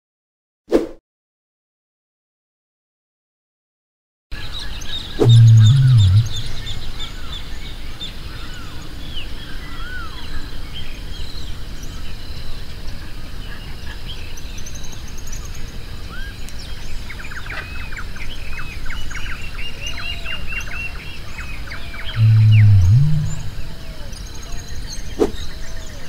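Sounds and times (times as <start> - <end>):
small songbirds chirping: 4.4 - 26.0
bird repeating short arched notes: 5.2 - 6.5, 22.2 - 23.7
outdoor background hum: 5.2 - 7.4, 22.2 - 26.0.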